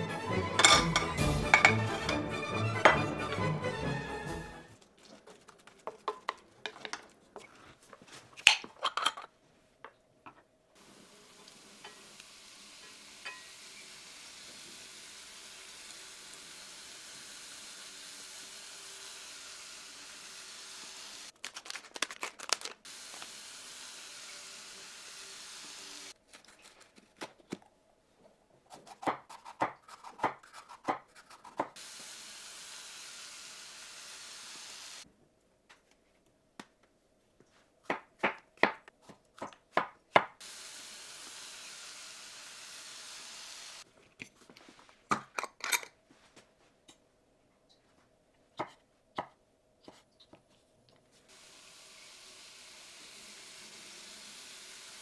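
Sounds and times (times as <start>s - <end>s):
food sizzling in a frying pan: 10.8s - 21.3s, 22.9s - 26.2s, 31.8s - 35.0s, 40.4s - 43.8s, 51.3s - 55.0s.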